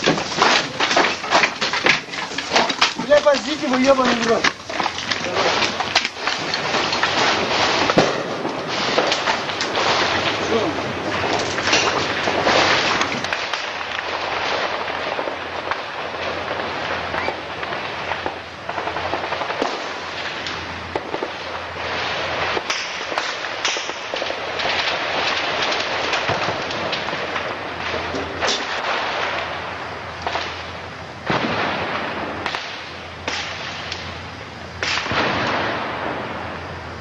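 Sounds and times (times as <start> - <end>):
small-arms fire crackling: 0.0 - 37.0
loud gunshot reports: 6.7 - 10.8, 34.8 - 36.3.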